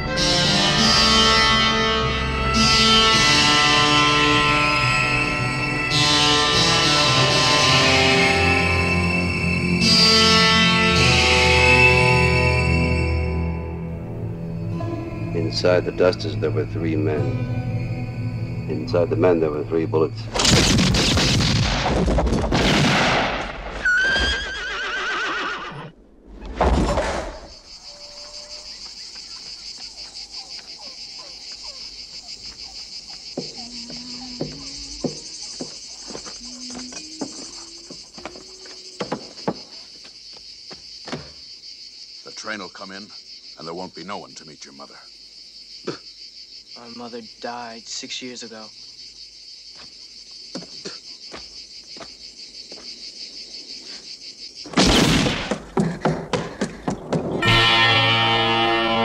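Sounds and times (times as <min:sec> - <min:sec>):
insects droning: 0:00.0 - 0:22.7, 0:23.4 - 0:59.0
short insect chirps: 0:27.2 - 0:54.8.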